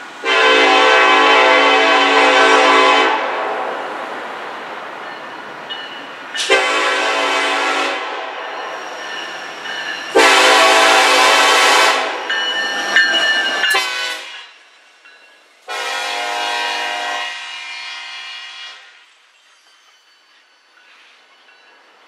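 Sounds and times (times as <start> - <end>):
low rumble of train: 0.0 - 22.0
locomotive air horn blasts: 0.2 - 3.7, 6.4 - 8.4, 10.1 - 12.3, 13.7 - 14.5, 15.7 - 19.0.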